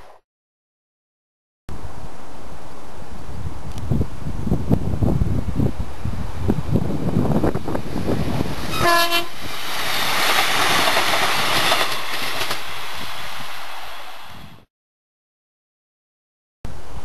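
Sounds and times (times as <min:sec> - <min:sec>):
train wheels rushing on rail: 0:01.8 - 0:14.7
wind buffeting microphone: 0:03.1 - 0:13.5
train horn blast: 0:08.7 - 0:09.4.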